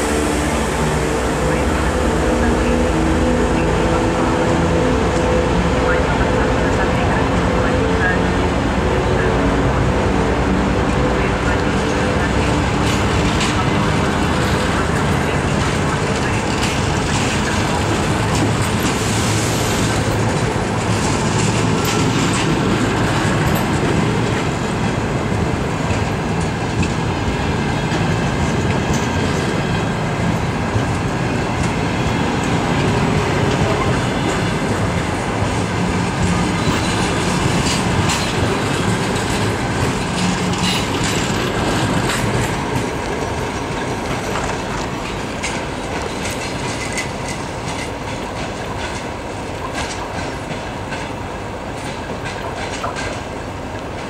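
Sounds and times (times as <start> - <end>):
train wheels clicking over rail joints: 11.0 - 54.0.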